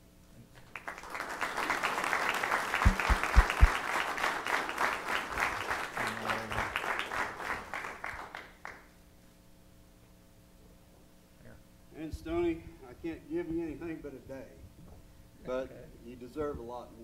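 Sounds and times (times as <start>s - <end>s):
audience applauding: 0.6s - 8.9s
low thumps: 2.8s - 3.8s.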